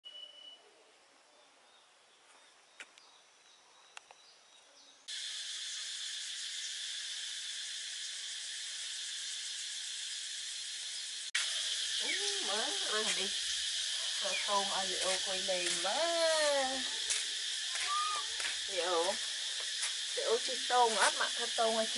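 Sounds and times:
shrill insect chorus: 0:05.1 - 0:21.9.

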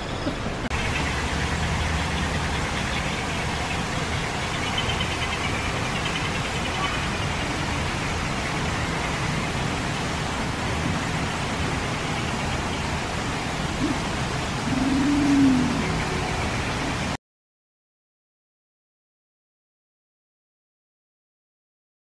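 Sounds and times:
steady rushing noise: 0:00.0 - 0:17.2.

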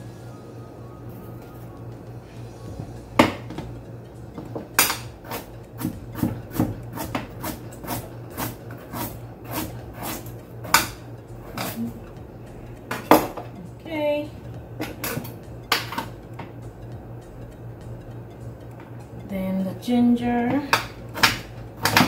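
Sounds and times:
knife chopping on cutting board: 0:04.8 - 0:11.0, 0:20.8 - 0:22.0.

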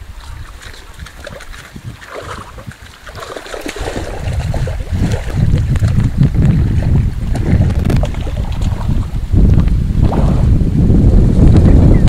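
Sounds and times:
wind rumble on microphone: 0:00.0 - 0:12.0
fish splashing in water: 0:00.2 - 0:09.2.

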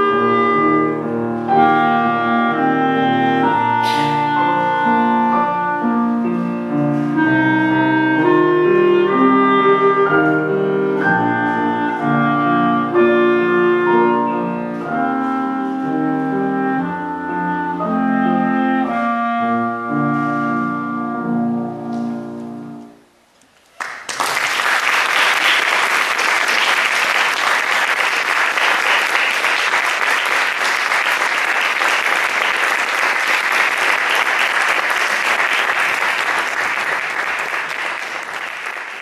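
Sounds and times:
clarinet and piano chord: 0:00.0 - 0:23.0
audience applauding: 0:23.6 - 0:39.0.

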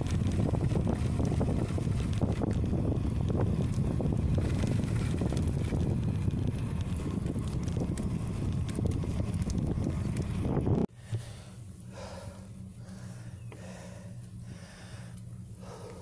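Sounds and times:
wind buffeting microphone: 0:00.0 - 0:11.2.

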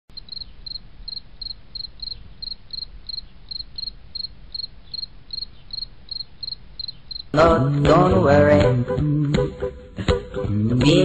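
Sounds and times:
insect chirping: 0:00.1 - 0:07.4.

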